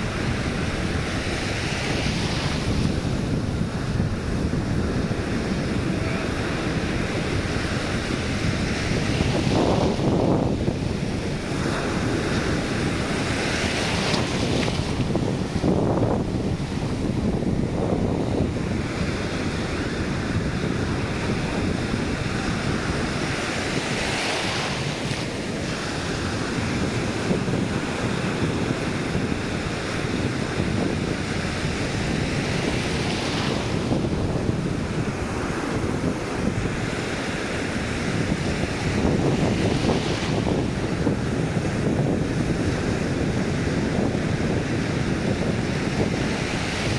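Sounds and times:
small surf breaking: 0.0 - 40.8
foamy wash over sand: 0.0 - 46.9
wind rumbling on microphone: 0.0 - 46.9.

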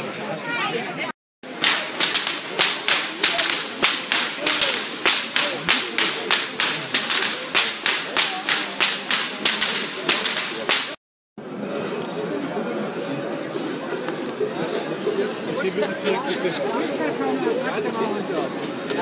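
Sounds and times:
crowd voices: 0.0 - 19.0
whip cracking: 1.5 - 11.0.

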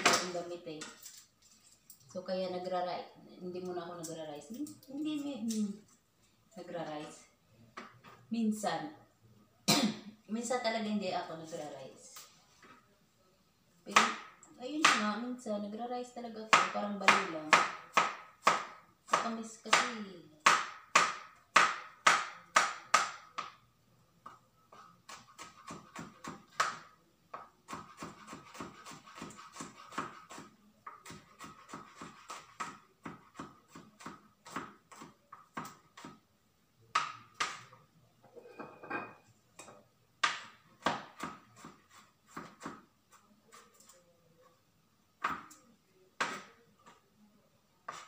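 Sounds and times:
knife chopping on cutting board: 24.2 - 36.2, 40.2 - 42.9.

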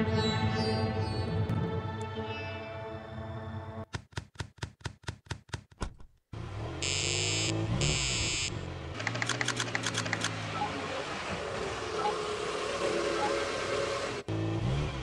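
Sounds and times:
short electronic buzzes: 6.8 - 8.6.

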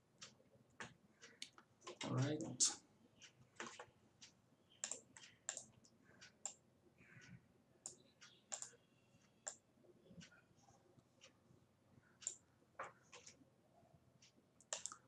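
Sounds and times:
faint computer mouse clicks: 4.8 - 8.8, 12.2 - 13.4, 14.6 - 15.0.

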